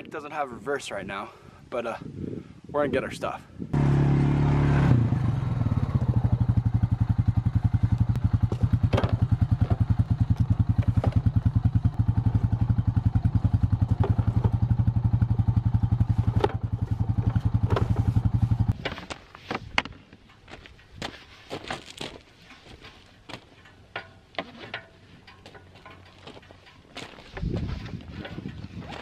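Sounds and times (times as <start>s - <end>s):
atv engine idling: 3.8s - 18.8s.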